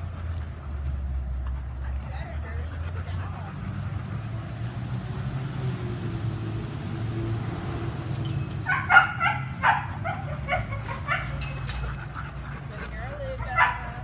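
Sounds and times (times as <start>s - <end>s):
dog yipping and barking: 8.6s - 12.0s, 13.4s - 14.0s.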